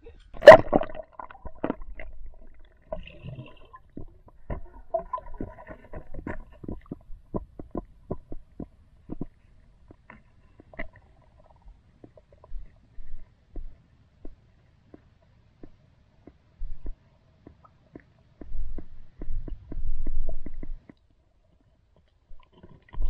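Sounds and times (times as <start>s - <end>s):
underwater low rumble: 0.0s - 14.4s, 16.6s - 17.0s, 18.4s - 20.9s
splash into water: 0.4s - 1.8s.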